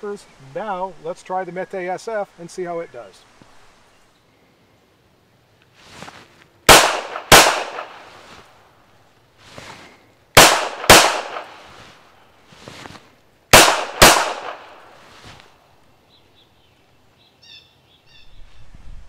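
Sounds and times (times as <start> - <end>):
pistol shots: 6.7 - 8.2, 10.4 - 11.8, 13.5 - 15.0
birds chirping: 15.7 - 18.4.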